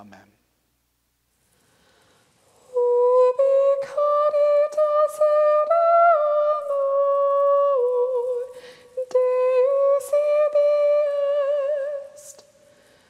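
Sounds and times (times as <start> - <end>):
short breaths: 1.5 - 2.6, 8.5 - 9.0, 12.6 - 13.0.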